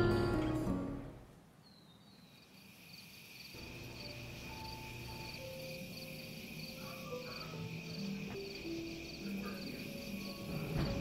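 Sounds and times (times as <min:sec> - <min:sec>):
soft sustained music: 0:00.0 - 0:01.3, 0:03.6 - 0:11.0
crickets chirping: 0:01.6 - 0:11.0
insects humming: 0:01.6 - 0:11.0.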